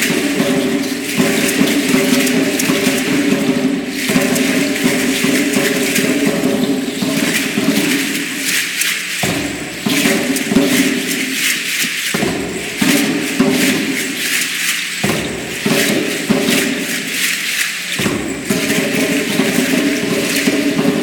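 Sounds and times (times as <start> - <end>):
ankle rattles shaking: 0.0 - 21.0.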